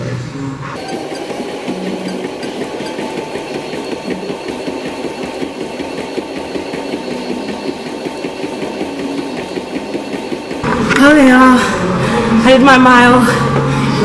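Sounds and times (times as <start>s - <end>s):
feet striking treadmill belt: 0.8s - 10.6s
treadmill motor whine: 0.8s - 14.0s.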